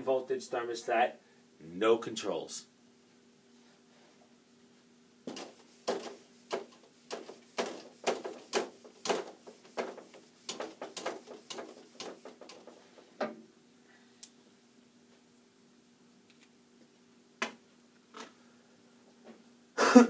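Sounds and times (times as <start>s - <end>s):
faint steady hum: 0.0s - 20.0s
eraser rubbing on whiteboard: 5.3s - 12.8s.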